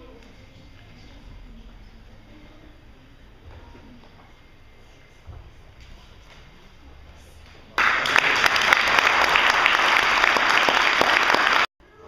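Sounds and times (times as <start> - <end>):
group clapping hands: 7.8 - 11.7.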